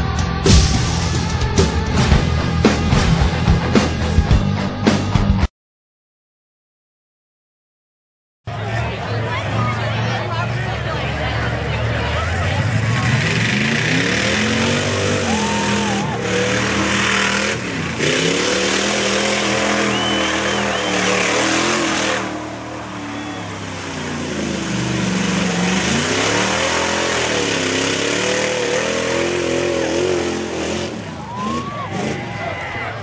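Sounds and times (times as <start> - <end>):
pickup truck engine revving: 9.4 - 32.6.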